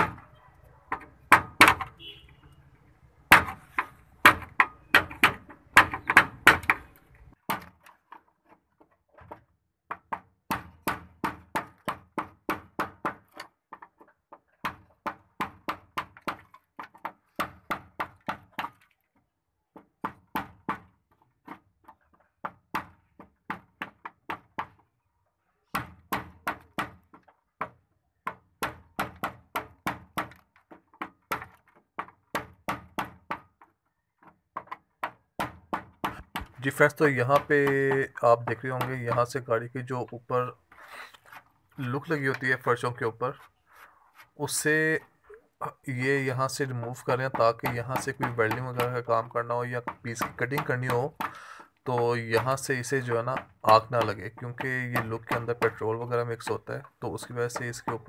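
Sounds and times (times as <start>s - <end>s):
hammer striking chisel on metal: 0.9s - 2.3s, 3.3s - 7.7s.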